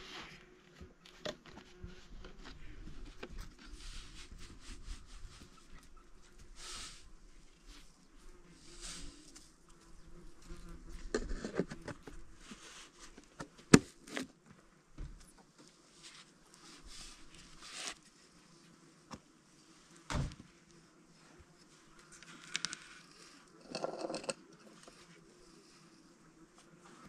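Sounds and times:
insect buzzing: 6.2s - 12.6s
knocks and scrapes: 10.6s - 14.3s, 23.6s - 25.0s.

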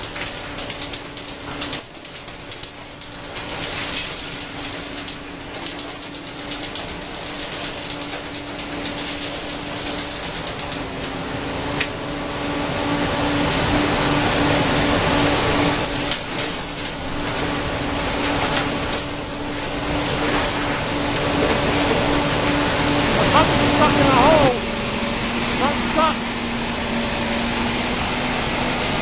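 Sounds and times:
vacuum truck suction rushing: 21.2s - 29.0s.

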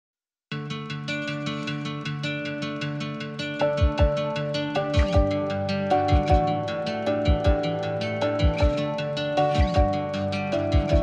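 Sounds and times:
plucked guitar notes: 0.5s - 11.0s
deep bass thumps: 3.8s - 4.2s, 5.0s - 5.3s, 6.1s - 6.5s, 7.3s - 7.7s, 8.4s - 8.8s.

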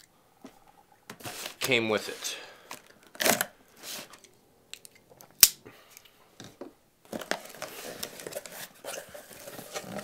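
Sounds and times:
cardboard flaps rustling and scraping: 7.1s - 10.0s.

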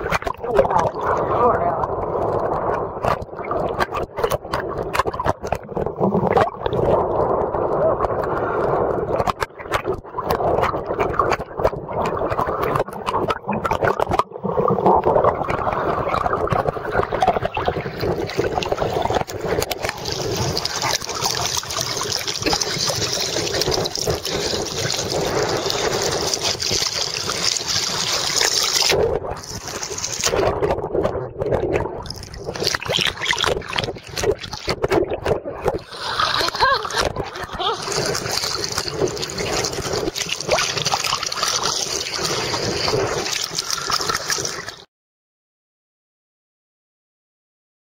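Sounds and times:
water splashing and lapping: 0.0s - 44.9s
wind on microphone: 14.8s - 43.4s.

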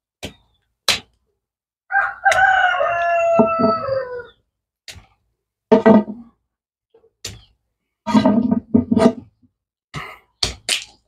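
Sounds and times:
rooster crowing: 1.9s - 4.4s.

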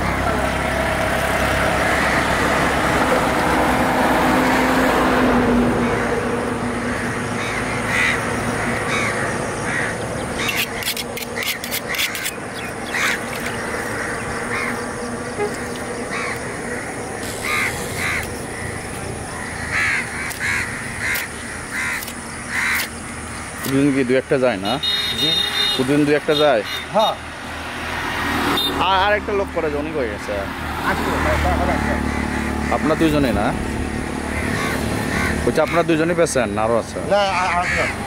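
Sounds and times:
engine hum: 0.0s - 38.0s
crows cawing: 1.6s - 2.6s, 5.8s - 23.0s, 31.3s - 33.4s, 34.1s - 36.2s, 37.2s - 38.0s
sharp clicks: 22.0s - 23.0s.

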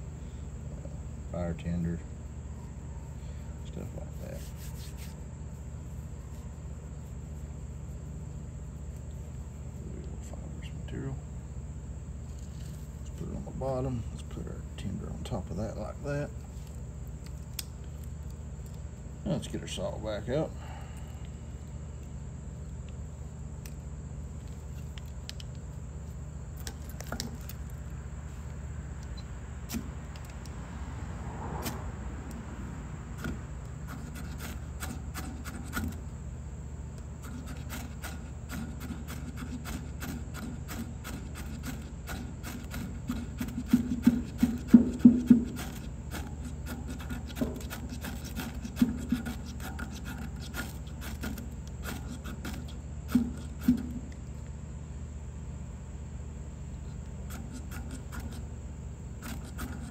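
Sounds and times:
knife scraping ferro rod: 33.2s - 36.0s, 37.2s - 54.0s, 57.2s - 58.5s, 59.2s - 59.9s.

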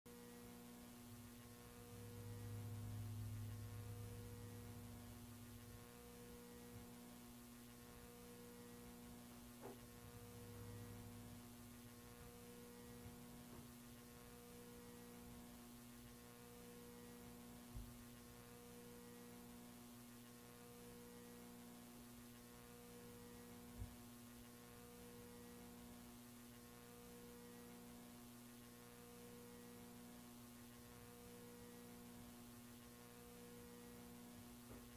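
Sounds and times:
faint mains hum: 0.1s - 34.9s.

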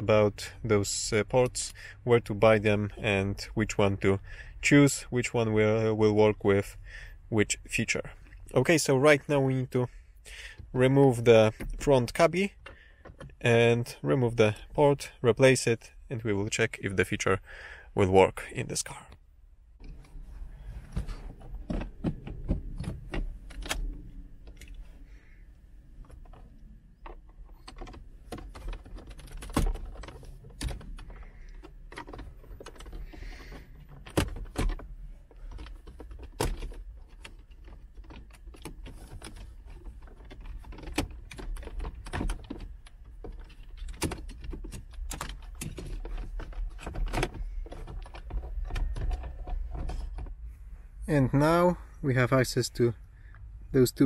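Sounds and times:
plastic trim clicking and rattling: 26.0s - 50.4s.

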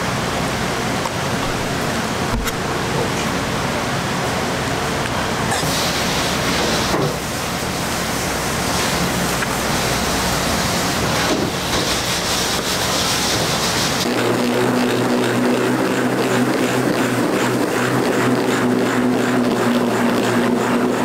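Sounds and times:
rushing kitchen noise: 0.0s - 21.0s
immersion blender motor humming: 14.0s - 21.0s.

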